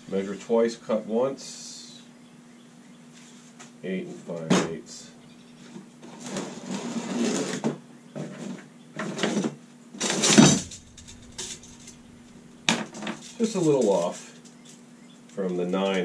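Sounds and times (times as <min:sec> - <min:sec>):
steady low hum: 0:10.3 - 0:13.8.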